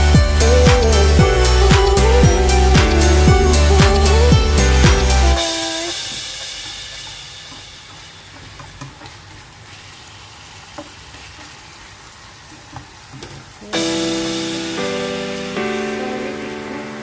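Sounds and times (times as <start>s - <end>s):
food sizzling in a frying pan: 5.4s - 17.0s.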